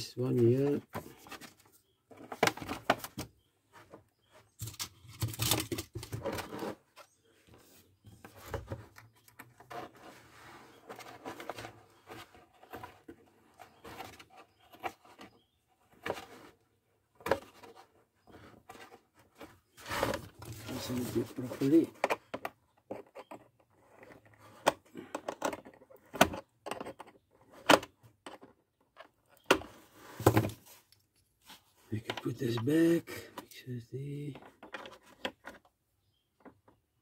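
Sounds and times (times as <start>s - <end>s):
hard plastic clicks and scrapes: 17.2s - 31.0s, 34.3s - 35.7s.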